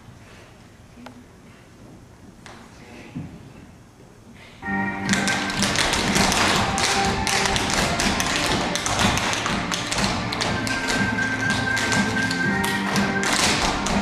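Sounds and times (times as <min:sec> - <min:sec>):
music with steady beat: 0:04.6 - 0:14.0
feet tapping and stomping on stage: 0:05.0 - 0:14.0.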